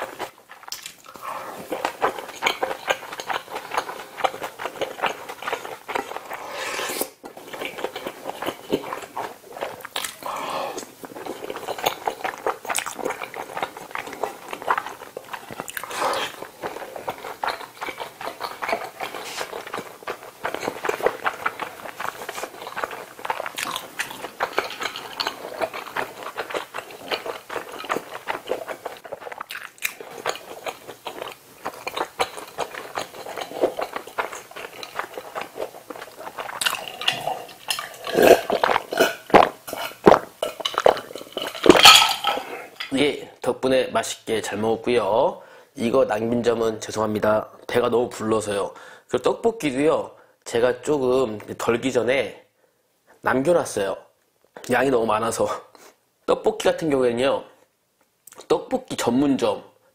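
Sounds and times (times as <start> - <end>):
swallowing sounds: 0.0 - 43.0
wet chewing and mouth sounds: 0.0 - 43.1.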